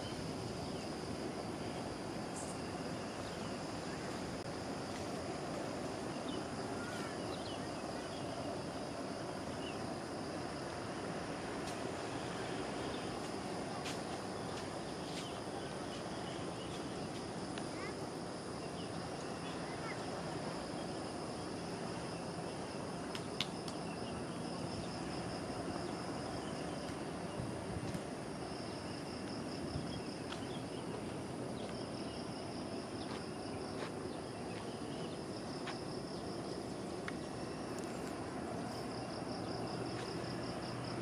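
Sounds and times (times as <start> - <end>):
low background noise: 0.0 - 41.0
faint sharp clicks: 23.1 - 23.8.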